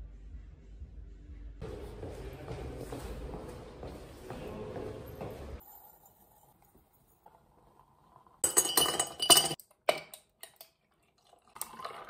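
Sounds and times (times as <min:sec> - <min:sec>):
ice cubes clinking into glass jar: 0:08.4 - 0:09.6.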